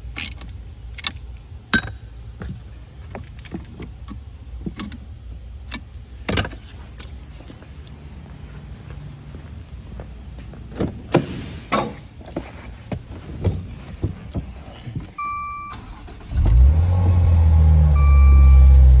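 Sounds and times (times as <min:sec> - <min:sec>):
car engine starting and idling: 0:15.0 - 0:19.0
electronic dashboard chime: 0:15.2 - 0:15.8, 0:17.9 - 0:19.0.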